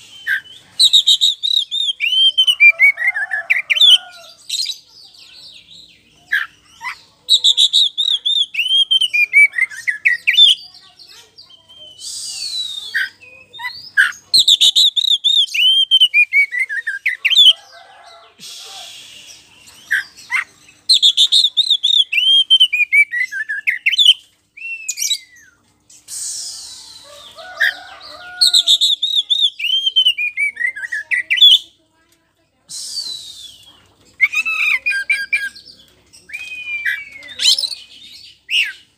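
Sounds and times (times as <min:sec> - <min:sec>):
bird singing whistled phrases: 0:00.0 - 0:03.0, 0:07.3 - 0:10.6, 0:11.7 - 0:17.5, 0:20.8 - 0:25.6, 0:28.4 - 0:31.6, 0:32.7 - 0:35.7, 0:36.3 - 0:38.8.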